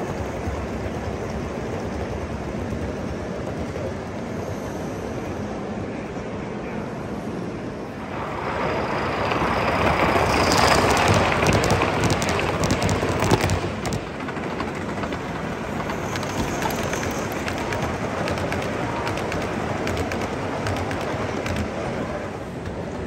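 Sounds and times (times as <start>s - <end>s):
model train rolling on track: 0.0s - 23.0s
steady background hum: 0.0s - 23.0s
wheels clicking over rail joints: 9.1s - 23.0s.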